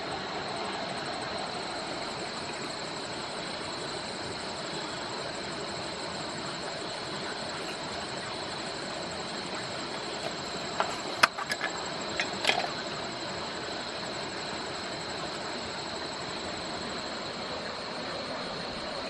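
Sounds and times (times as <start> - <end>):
night insects droning: 0.0 - 19.0
clicks and knocks on wet stones: 9.9 - 12.8.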